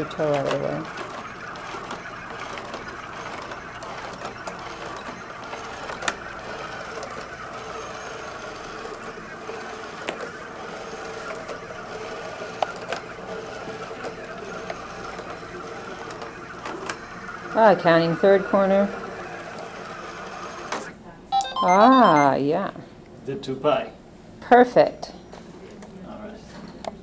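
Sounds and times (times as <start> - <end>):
robot motors whirring: 0.0 - 20.9.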